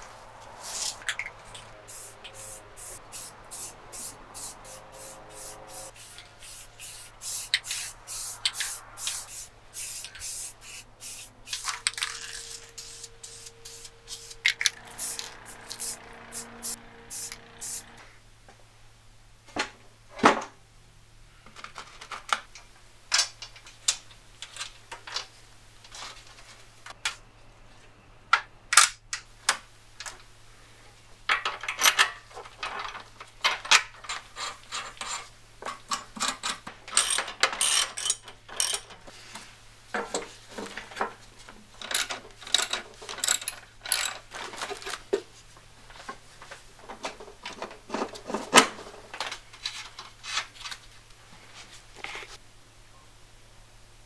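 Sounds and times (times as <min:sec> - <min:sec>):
spray-paint can hissing: 0:00.6 - 0:17.9
metal nuts and bolts clinking: 0:33.7 - 0:39.0, 0:41.8 - 0:44.9.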